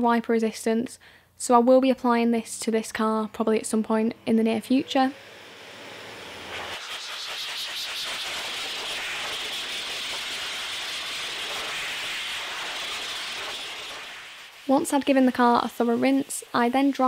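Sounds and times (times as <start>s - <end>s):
car dryer blowing air: 3.8s - 17.0s.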